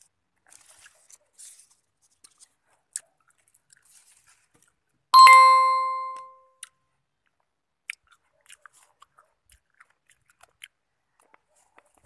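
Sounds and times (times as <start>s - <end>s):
bright chime ringing: 5.2s - 6.3s.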